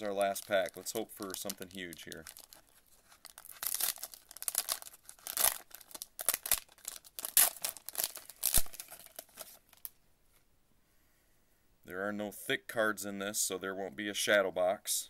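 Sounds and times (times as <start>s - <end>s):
foil pack crinkling and ripping: 0.0s - 9.9s.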